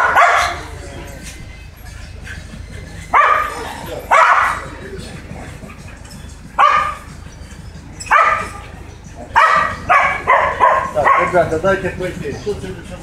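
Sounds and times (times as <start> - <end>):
dog barking: 0.0 - 0.8, 3.1 - 4.7, 6.6 - 7.2, 8.0 - 11.5.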